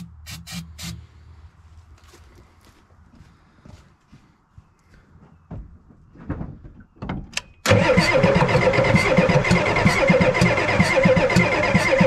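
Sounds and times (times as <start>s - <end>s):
diesel engine starter cranking: 7.6s - 12.0s.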